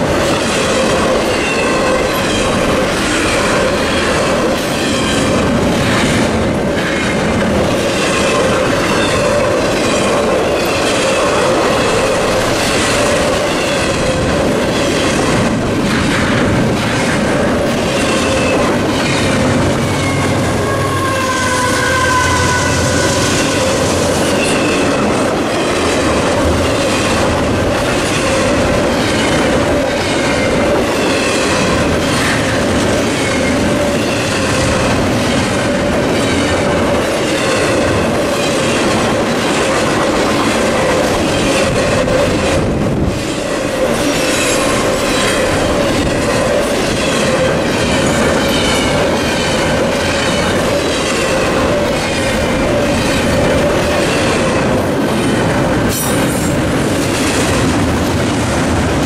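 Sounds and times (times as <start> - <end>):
train wheels rumbling on rails: 0.0 - 59.0
train wheel squeal: 0.3 - 6.3, 7.9 - 15.4, 17.8 - 25.9, 28.0 - 39.8, 40.8 - 54.8
crossing bell ringing: 18.0 - 25.8.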